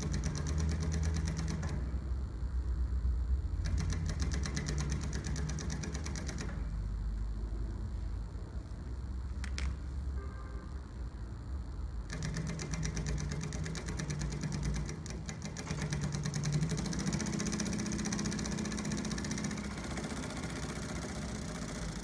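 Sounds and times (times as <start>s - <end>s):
sewing machine stitching: 0.0s - 1.9s, 3.6s - 6.7s, 12.1s - 22.0s.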